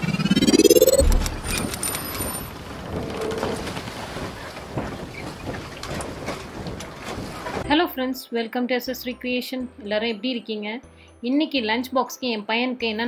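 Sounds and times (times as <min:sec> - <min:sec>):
rising whoosh: 0:00.0 - 0:02.0
steady rushing noise: 0:00.0 - 0:02.0.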